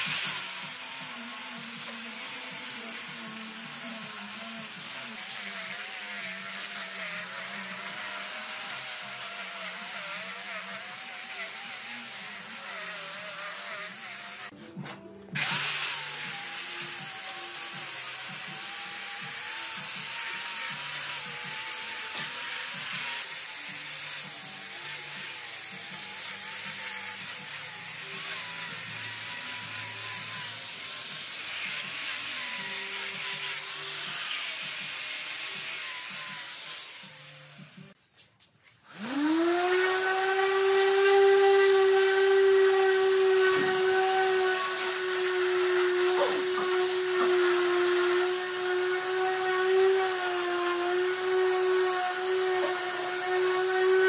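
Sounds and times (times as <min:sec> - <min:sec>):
angle grinder sanding wood: 0:00.0 - 0:14.6, 0:15.4 - 0:38.0, 0:38.7 - 0:54.0
soft background music: 0:11.4 - 0:38.2.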